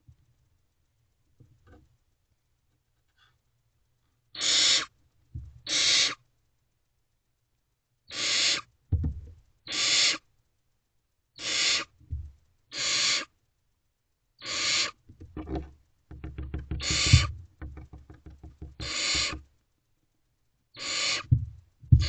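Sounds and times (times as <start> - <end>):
owlets rasping hissing calls: 4.4 - 4.9, 5.6 - 6.2, 8.1 - 8.7, 9.7 - 10.2, 11.4 - 12.0, 12.7 - 13.3, 14.4 - 15.0, 16.8 - 17.3, 18.8 - 19.4, 20.8 - 21.4
scuffles and knocks in nest box: 15.1 - 19.4, 21.3 - 22.0.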